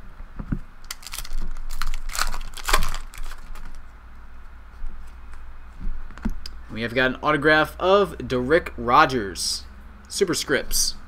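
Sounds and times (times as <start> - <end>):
trading cards rustling and flicking: 0.9 - 3.8.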